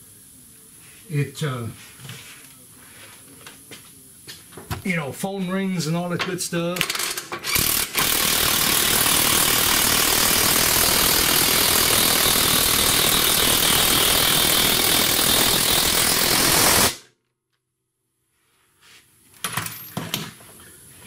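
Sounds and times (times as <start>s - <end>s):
cordless power tool running: 6.9s - 17.0s.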